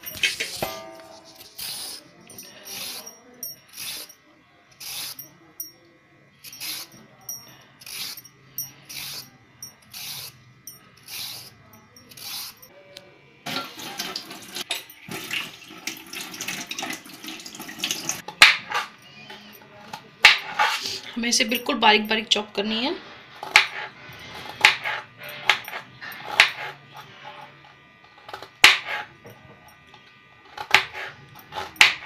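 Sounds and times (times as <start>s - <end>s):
peeler scraping carrot: 0.0s - 5.3s, 6.4s - 7.1s, 7.8s - 10.4s, 11.0s - 12.7s, 17.8s - 21.7s, 23.3s - 29.2s, 30.4s - 32.0s.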